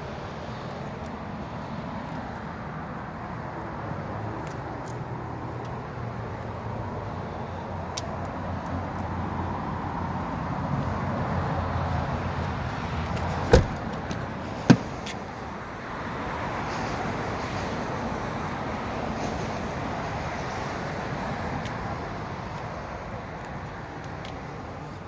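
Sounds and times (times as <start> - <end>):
distant traffic: 0.0 - 25.0
car doors thumping: 13.5 - 15.1.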